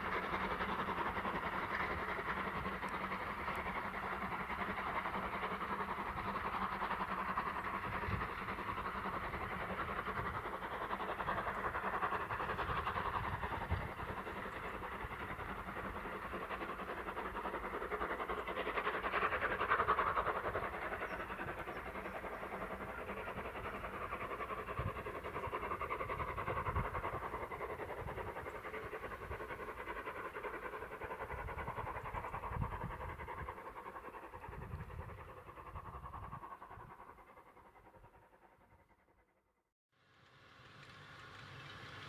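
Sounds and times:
steam locomotive chuffing: 0:00.0 - 0:39.2, 0:40.0 - 0:42.0
wind buffeting microphone: 0:07.7 - 0:16.0, 0:18.7 - 0:29.9, 0:31.0 - 0:37.1.

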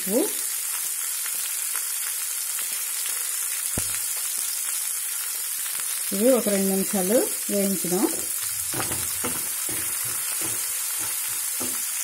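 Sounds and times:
onions sizzling in hot oil: 0:00.0 - 0:12.0
knock: 0:08.7 - 0:11.9.

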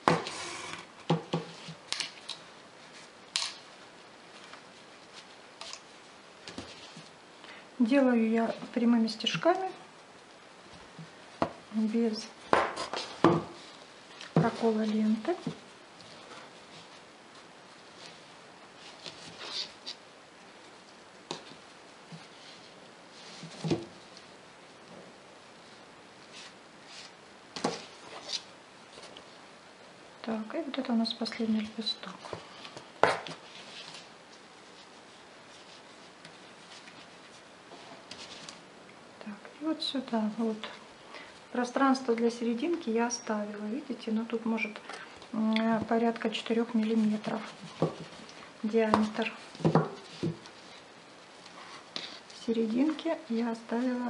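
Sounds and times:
ribbon rustling through fabric: 0:45.3 - 0:54.0.

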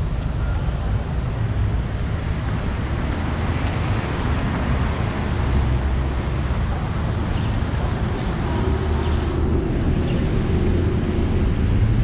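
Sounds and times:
traffic noise: 0:00.0 - 0:12.0.

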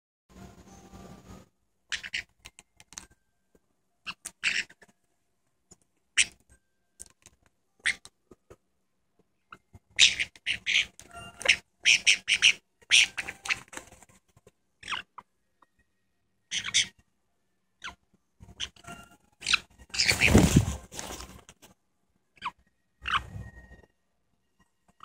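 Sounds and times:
parrots squawking harshly: 0:01.9 - 0:02.3, 0:04.1 - 0:04.8, 0:07.8 - 0:08.0, 0:09.9 - 0:13.7, 0:14.8 - 0:15.2, 0:16.5 - 0:16.9, 0:18.6 - 0:20.6.

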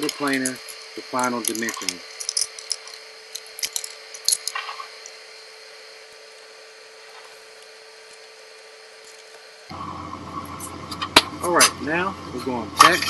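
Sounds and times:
metal clamps clicking and knocking: 0:00.0 - 0:04.6
faint steady hum: 0:00.0 - 0:13.0.

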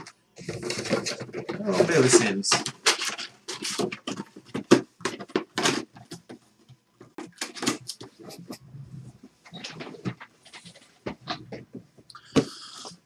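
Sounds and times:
trading cards rustling and snapping: 0:00.0 - 0:06.4.

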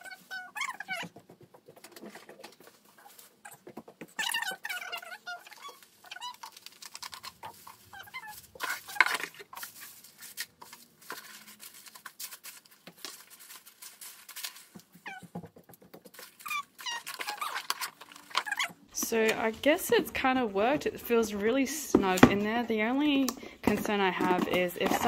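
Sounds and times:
bubble wrap and paper crinkling: 0:01.7 - 0:21.2.

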